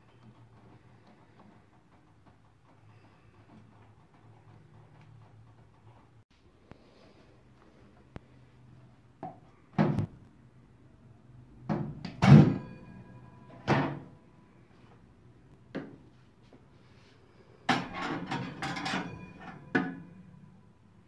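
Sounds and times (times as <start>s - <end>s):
knocks and thunks at toaster oven: 9.8s - 10.1s, 11.7s - 12.7s.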